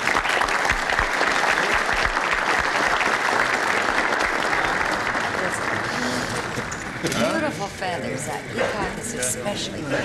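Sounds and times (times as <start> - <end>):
crowd applause: 0.0 - 7.1.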